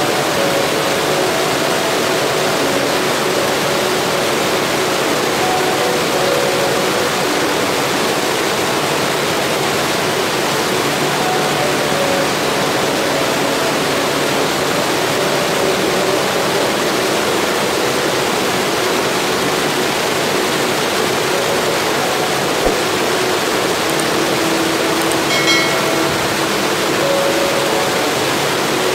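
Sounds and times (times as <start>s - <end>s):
stream rushing over boulders: 0.0s - 28.9s.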